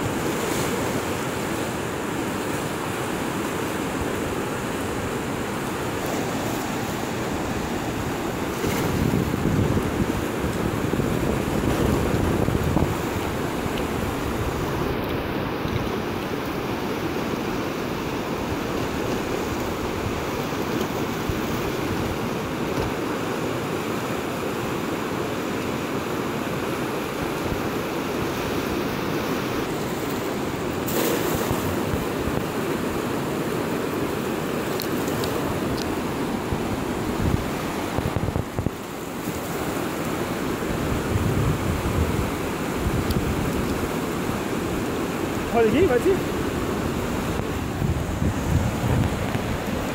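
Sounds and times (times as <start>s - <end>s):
river rushing past rocks: 0.0s - 49.9s
wind buffeting microphone: 7.4s - 16.2s, 35.4s - 39.7s, 40.6s - 49.9s.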